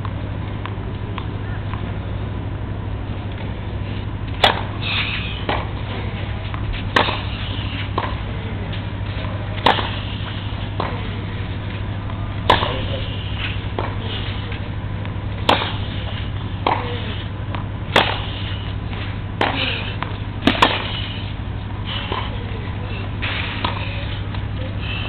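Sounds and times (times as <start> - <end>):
steady low hum: 0.0 - 25.0
tennis ball struck by rackets: 4.3 - 5.8, 6.4 - 8.3, 9.2 - 11.1, 12.0 - 14.5, 15.3 - 21.1, 22.0 - 22.4, 23.4 - 24.4.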